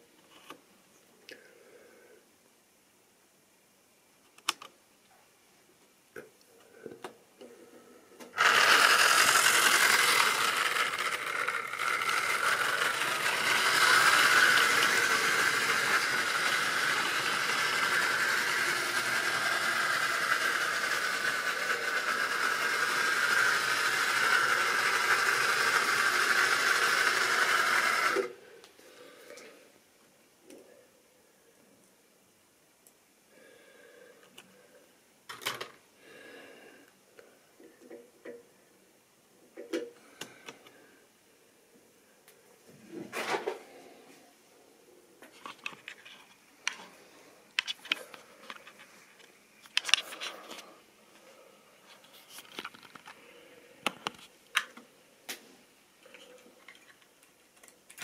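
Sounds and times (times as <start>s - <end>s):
model train whirring and rattling: 8.3s - 28.4s, 49.7s - 50.6s.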